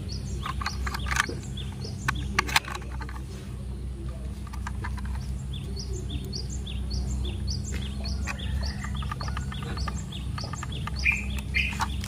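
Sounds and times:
small bird chirping: 0:00.0 - 0:03.3, 0:04.0 - 0:12.0
steady low hum: 0:00.0 - 0:12.0
light clicks of plastic parts: 0:00.4 - 0:03.4, 0:04.0 - 0:06.4, 0:07.7 - 0:12.0.

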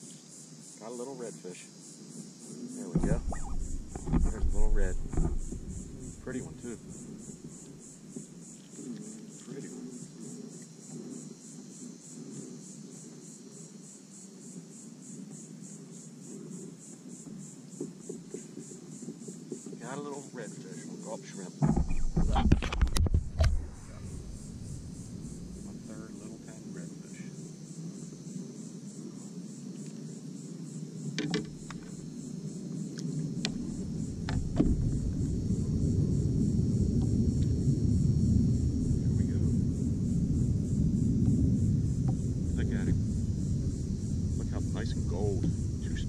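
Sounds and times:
insects buzzing in pulses: 0:00.0 - 0:46.0
low steady rushing noise: 0:02.5 - 0:08.4, 0:23.1 - 0:46.0
sharp clicks and knocks: 0:03.0 - 0:06.4, 0:21.6 - 0:23.6, 0:31.2 - 0:32.0.

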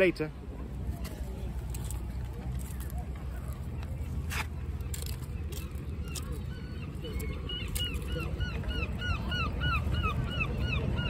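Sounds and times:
wind: 0:00.0 - 0:11.0
bird calling: 0:02.8 - 0:11.0.

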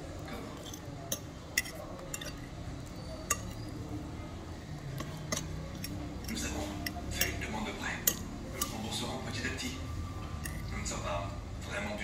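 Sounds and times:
low background hum: 0:00.0 - 0:12.0
cutlery clinking on plate: 0:00.4 - 0:02.5, 0:03.1 - 0:03.7, 0:05.0 - 0:07.4.

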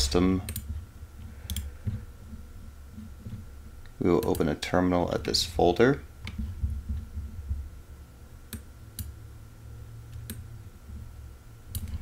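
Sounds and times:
low steady hum: 0:00.0 - 0:12.0
sharp computer clicks: 0:00.4 - 0:00.7, 0:01.4 - 0:01.7, 0:04.1 - 0:04.6, 0:11.7 - 0:12.0.

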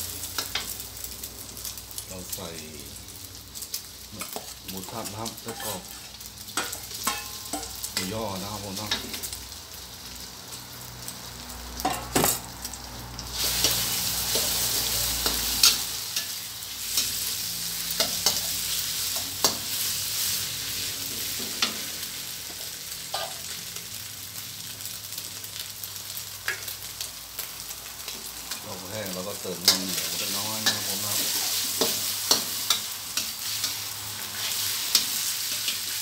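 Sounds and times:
food sizzling in a wok: 0:00.0 - 0:36.0
spatula clicking and scraping wok: 0:00.2 - 0:00.8, 0:03.6 - 0:08.2, 0:13.3 - 0:20.4, 0:21.2 - 0:23.6, 0:28.0 - 0:36.0.

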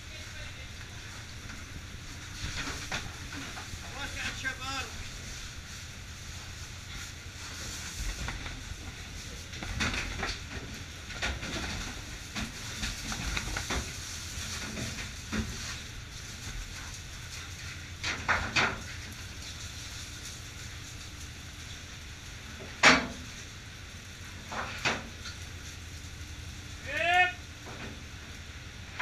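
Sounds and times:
boat engine drone: 0:00.0 - 0:11.0.

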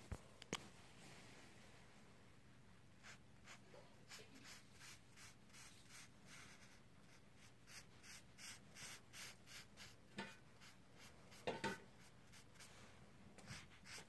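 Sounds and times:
felt tip scratching on paper: 0:03.0 - 0:10.0, 0:13.4 - 0:14.0.

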